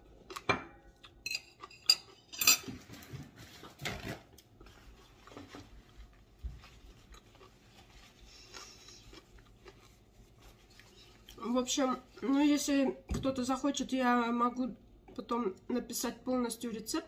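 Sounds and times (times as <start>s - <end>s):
cutlery clinking against a dish: 0.5s - 3.0s
cutlery clatter: 1.3s - 3.2s.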